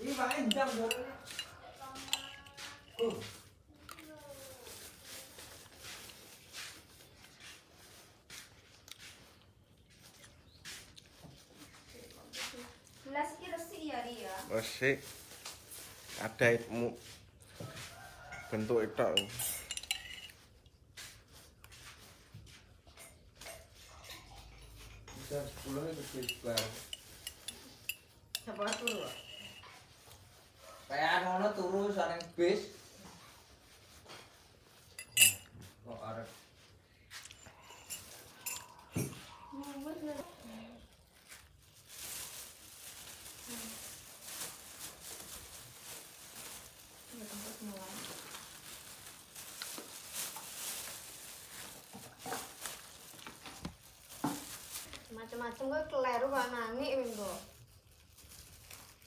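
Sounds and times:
plastic bags rustling: 0.0 - 8.8, 11.7 - 21.6, 24.9 - 59.0
spoon clinking in a glass: 0.1 - 3.3, 19.1 - 20.4, 26.1 - 29.7, 35.0 - 35.5, 37.3 - 39.2.

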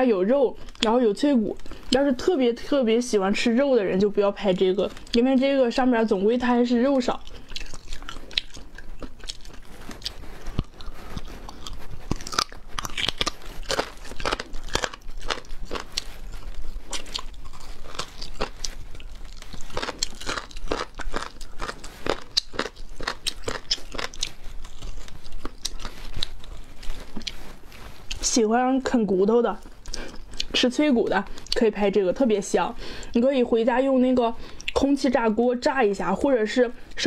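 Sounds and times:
wet chewing: 4.4 - 28.3, 29.5 - 31.7
person crunching chicken bones: 7.2 - 27.4.

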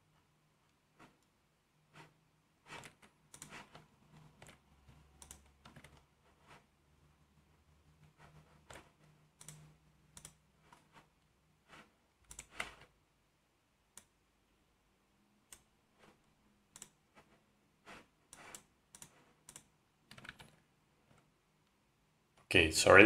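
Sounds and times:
computer mouse and keyboard clicks: 2.0 - 6.7, 8.0 - 11.1, 11.7 - 12.9, 15.5 - 21.3.

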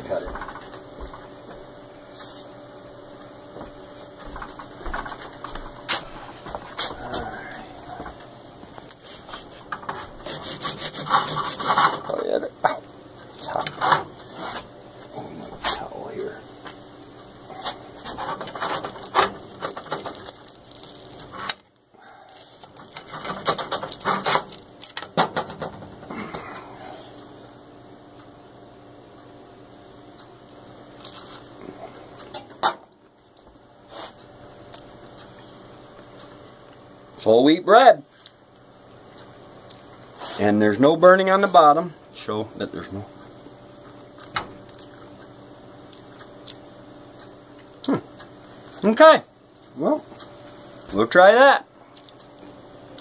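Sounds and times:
faint steady hum: 0.0 - 53.0
knife sawing through bread crust: 9.1 - 12.1.

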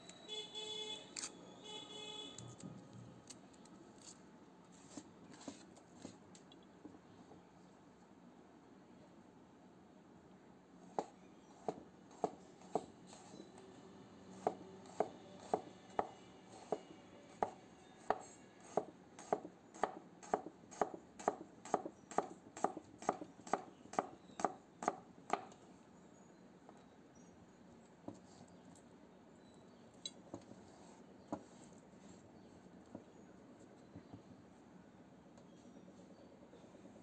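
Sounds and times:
knife slicing onion: 11.0 - 13.6, 14.3 - 25.5.

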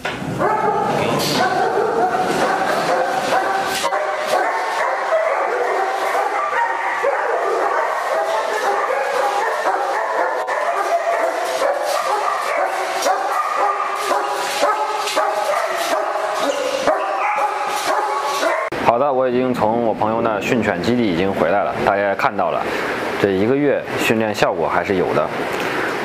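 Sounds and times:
dogs barking and yipping: 0.2 - 18.8.

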